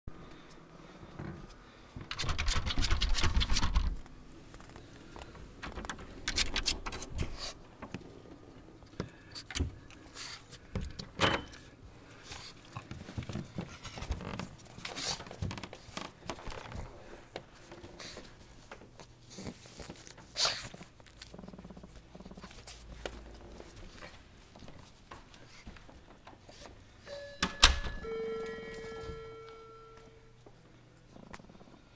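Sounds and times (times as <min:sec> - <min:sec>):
electric door buzzer ringing: 0:27.1 - 0:29.6.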